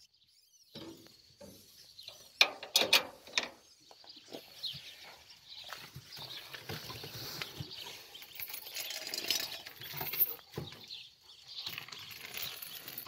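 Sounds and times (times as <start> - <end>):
hutch fittings clicking and rattling: 2.4 - 3.6, 7.9 - 13.0.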